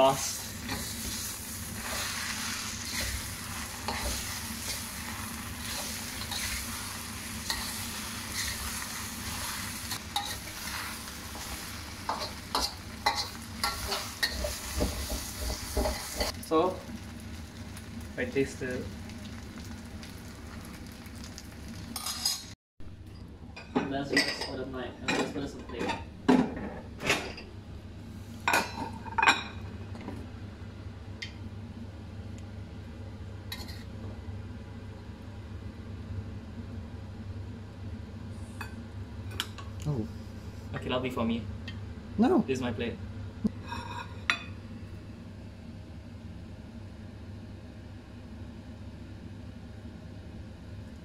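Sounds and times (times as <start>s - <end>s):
low mechanical hum: 0.0s - 51.0s
utensils clanking against a wok: 5.6s - 6.6s, 7.4s - 16.4s, 22.0s - 22.6s.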